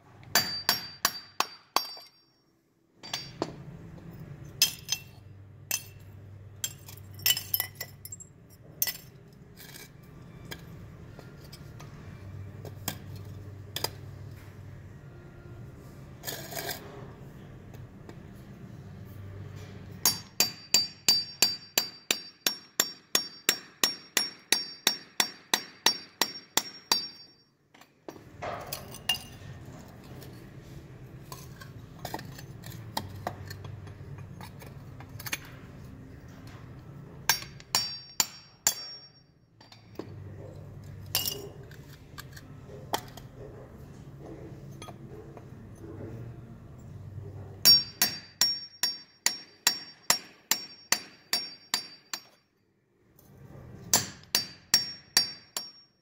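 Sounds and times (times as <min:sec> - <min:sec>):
chisel striking metal: 0:00.2 - 0:02.4, 0:03.0 - 0:14.2, 0:19.6 - 0:30.3, 0:31.3 - 0:43.4, 0:47.6 - 0:52.5, 0:53.9 - 0:56.0.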